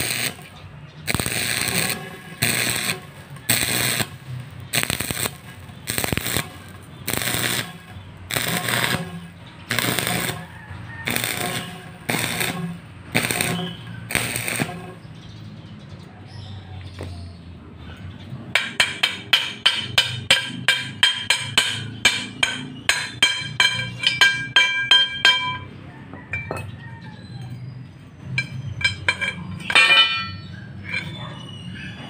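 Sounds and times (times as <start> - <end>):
welding arc crackling: 0.0 - 15.1
hammer striking ringing steel pipe: 18.6 - 26.6, 28.4 - 30.5.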